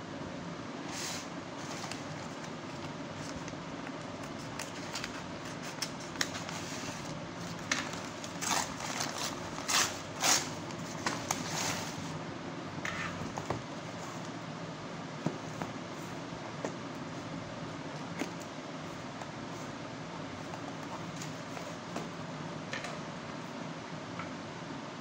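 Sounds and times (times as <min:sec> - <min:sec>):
paper crinkling and rustling: 0:01.6 - 0:12.0
scissors cutting paper bag: 0:07.8 - 0:11.5.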